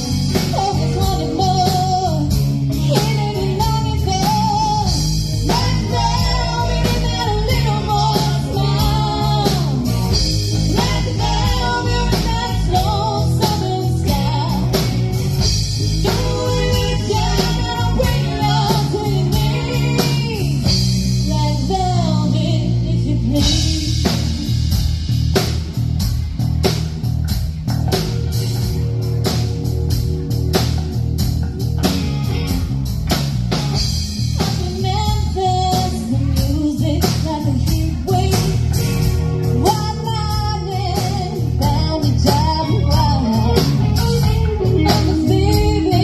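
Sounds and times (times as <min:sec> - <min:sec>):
bass: 0:00.0 - 0:46.0
drum kit: 0:00.0 - 0:46.0
electric guitar: 0:00.0 - 0:46.0
person singing: 0:00.3 - 0:10.0, 0:16.0 - 0:24.4, 0:39.5 - 0:46.0.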